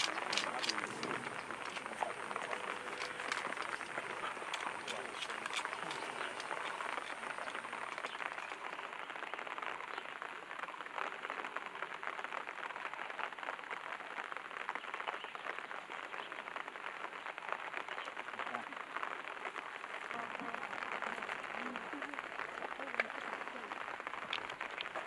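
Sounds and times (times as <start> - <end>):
sharp clicks: 0.0 - 8.4
fire crackling: 0.0 - 25.0.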